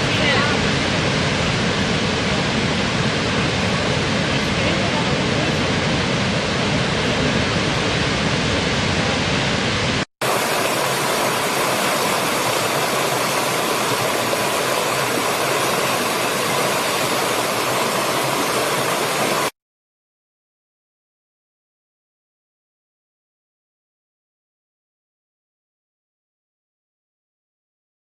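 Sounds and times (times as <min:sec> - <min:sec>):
waterfall rushing: 0:00.0 - 0:19.6
stream flowing over rocks: 0:10.2 - 0:19.6.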